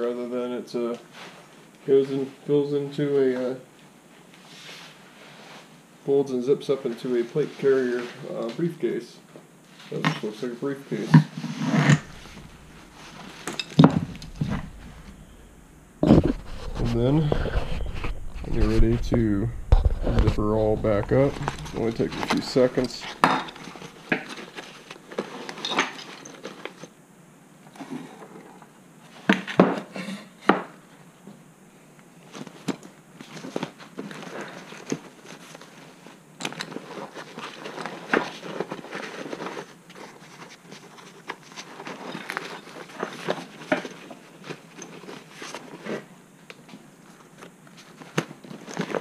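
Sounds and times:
zipper: 11.4 - 12.7
fabric rustling: 11.5 - 26.8.

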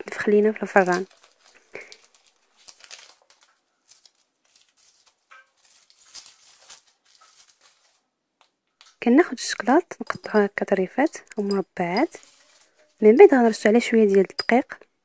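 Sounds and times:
wrapper crinkling and rustling: 0.0 - 9.1, 11.9 - 14.2.

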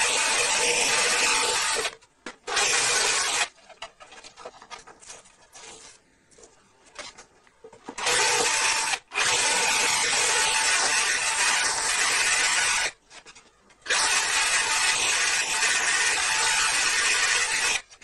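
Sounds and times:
power drill drilling into wood: 0.0 - 1.9, 2.5 - 3.5, 8.0 - 13.0, 13.9 - 17.8
rubbing and scraping on panel: 3.4 - 8.0.

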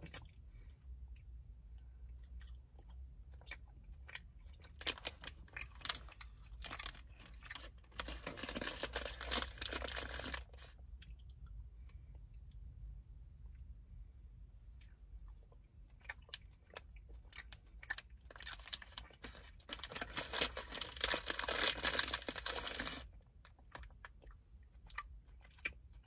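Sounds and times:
plastic wrapper crinkling: 4.8 - 10.7, 18.3 - 23.1.

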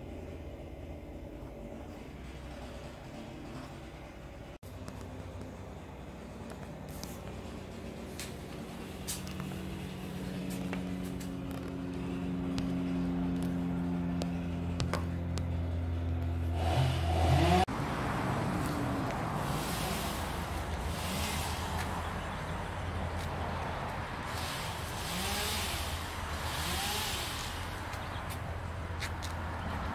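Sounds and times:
rough noisy running sound: 0.0 - 17.8, 18.5 - 29.9
engine idling and revving: 0.0 - 29.9.

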